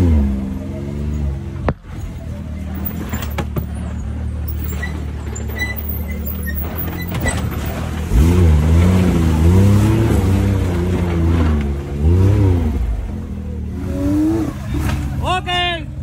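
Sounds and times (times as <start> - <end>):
utility vehicle engine revving: 0.0 - 15.3.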